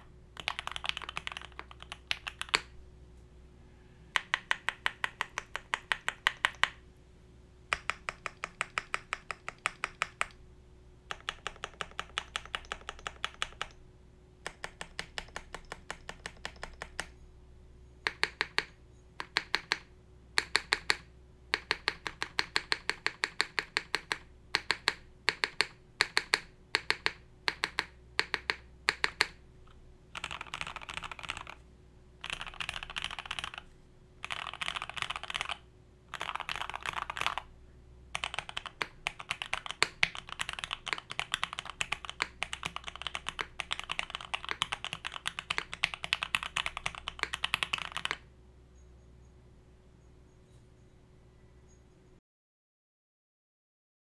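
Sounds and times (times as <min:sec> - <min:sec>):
keyboard keys pressed: 0:00.0 - 0:02.7, 0:04.2 - 0:06.8, 0:07.7 - 0:10.4, 0:11.1 - 0:13.8, 0:14.4 - 0:17.2, 0:18.0 - 0:29.4, 0:30.2 - 0:31.6, 0:32.2 - 0:37.5, 0:38.2 - 0:48.2
mechanical keyboard typing: 0:00.0 - 0:02.7, 0:04.2 - 0:06.8, 0:07.7 - 0:10.4, 0:11.1 - 0:13.8, 0:14.4 - 0:17.1, 0:18.0 - 0:29.4, 0:30.2 - 0:31.6, 0:32.2 - 0:37.5, 0:38.1 - 0:48.3.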